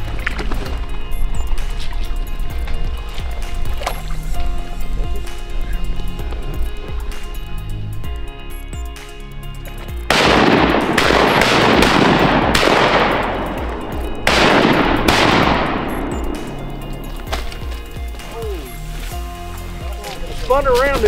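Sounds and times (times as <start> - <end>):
background music: 0.0 - 21.0
shotgun shots echoing: 10.1 - 17.1.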